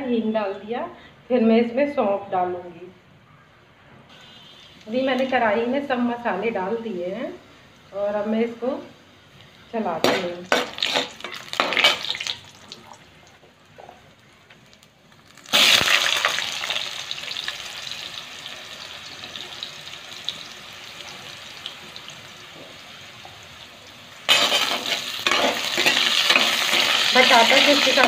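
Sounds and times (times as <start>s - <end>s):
faint sizzle of spices: 3.2s - 28.0s
potatoes sizzling in hot oil: 10.4s - 13.1s, 15.1s - 28.0s.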